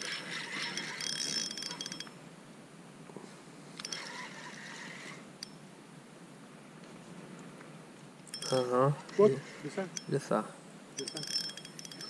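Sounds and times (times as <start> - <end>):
fishing reel clicking and whirring: 0.0 - 2.1, 8.3 - 8.7, 11.0 - 12.0.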